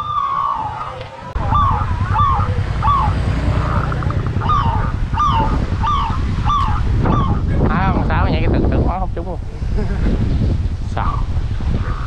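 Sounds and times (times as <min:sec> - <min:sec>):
bird honk-like calls: 0:00.0 - 0:07.5
wind rumble on microphone: 0:00.0 - 0:12.0.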